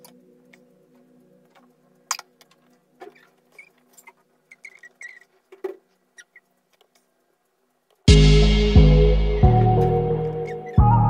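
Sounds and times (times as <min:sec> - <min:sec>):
soft held music tone: 0:00.0 - 0:11.0
small scratchy squeaks: 0:02.1 - 0:07.1.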